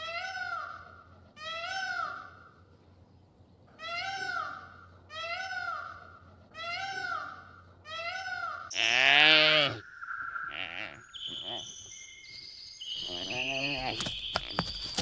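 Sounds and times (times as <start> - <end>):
peacock calling: 3.8 - 11.9, 12.9 - 15.0
bleat-like cry: 6.6 - 9.8, 10.5 - 11.6.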